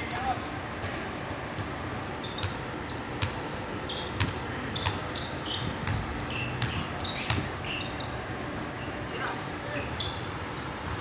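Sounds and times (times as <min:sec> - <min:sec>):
basketball bouncing on court: 0:01.6 - 0:07.9
sneakers squeaking on court: 0:01.6 - 0:09.1, 0:09.7 - 0:11.0.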